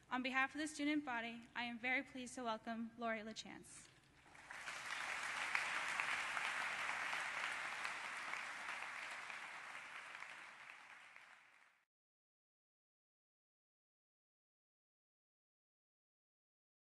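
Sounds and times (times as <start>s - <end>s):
audience applauding: 4.2s - 11.8s.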